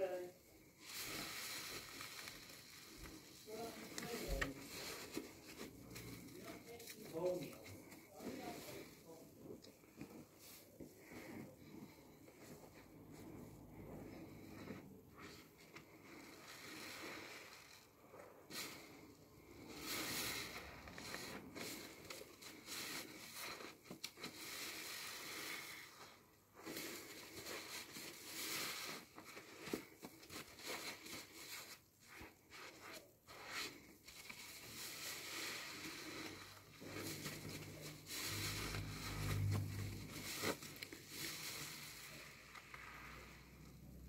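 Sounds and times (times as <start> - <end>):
low hum: 37.1 - 43.8.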